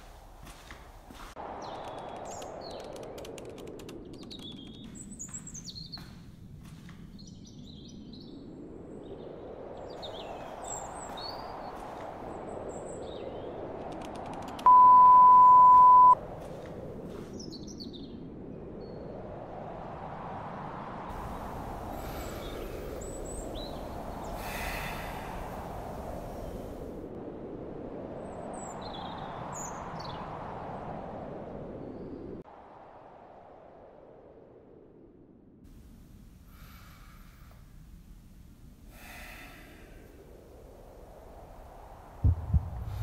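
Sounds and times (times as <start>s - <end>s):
small birds chirping: 0.5s - 13.7s, 21.2s - 26.9s
high-pitched beep: 14.7s - 16.2s
steady rushing noise: 16.2s - 43.0s.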